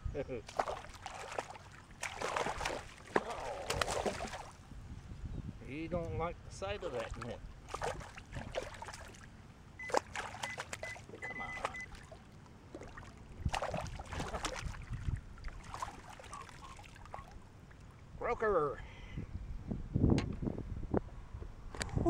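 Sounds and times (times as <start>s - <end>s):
fish splashing and thrashing: 0.4s - 4.6s, 7.0s - 17.9s
landing net through water: 0.4s - 4.6s, 6.9s - 18.0s.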